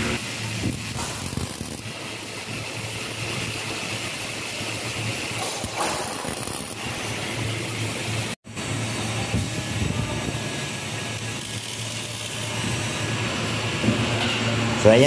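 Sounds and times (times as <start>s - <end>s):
welder arc bursts: 0.0s - 14.1s.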